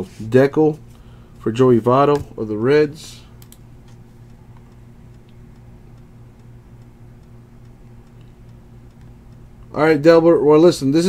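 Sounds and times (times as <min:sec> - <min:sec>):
low electrical hum: 0:00.0 - 0:11.0
faint light ticks: 0:03.4 - 0:09.8.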